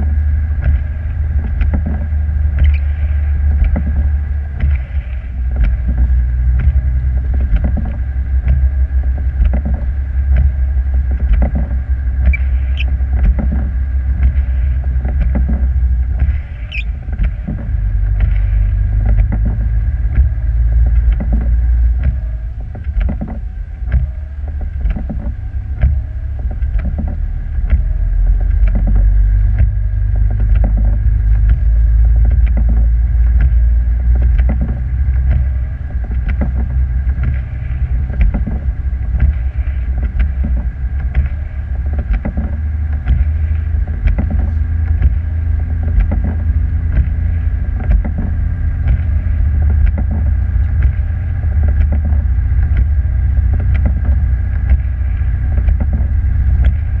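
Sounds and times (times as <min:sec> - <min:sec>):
faint steady whine: 0:00.0 - 0:57.0
vehicle driving rumble: 0:00.0 - 0:57.0.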